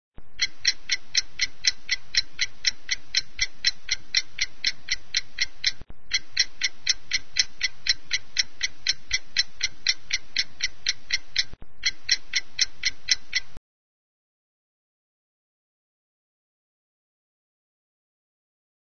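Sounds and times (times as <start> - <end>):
background hiss: 0.2 - 13.6
clock ticking: 0.2 - 13.6.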